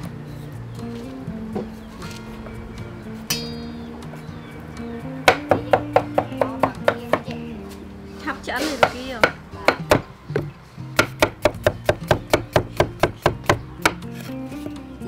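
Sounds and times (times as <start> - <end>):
cleaver chopping on wooden block: 5.3 - 7.4, 8.7 - 14.8.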